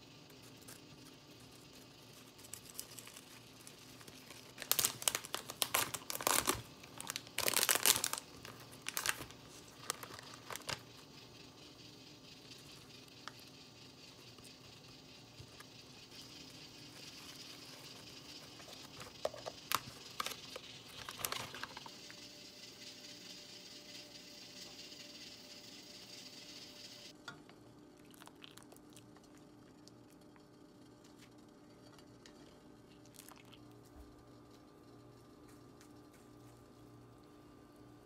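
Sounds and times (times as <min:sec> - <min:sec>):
paper bag crinkling: 0:02.4 - 0:10.8, 0:18.5 - 0:21.9.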